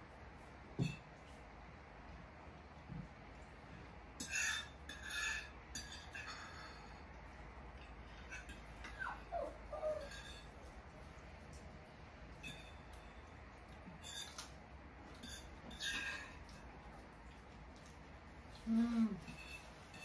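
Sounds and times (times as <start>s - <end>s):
forks scraping plates: 4.2s - 7.0s, 9.8s - 10.6s, 14.0s - 14.5s, 15.2s - 16.5s, 19.2s - 20.0s.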